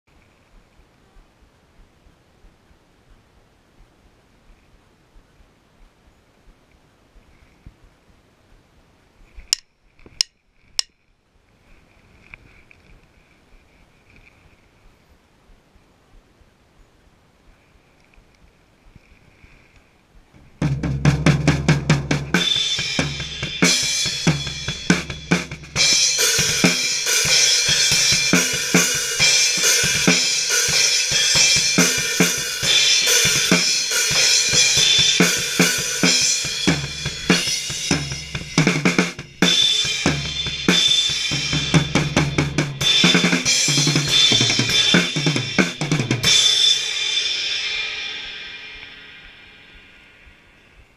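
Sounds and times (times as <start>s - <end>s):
drum kit played hard: 20.5s - 50.1s
cymbals ringing: 22.3s - 50.8s.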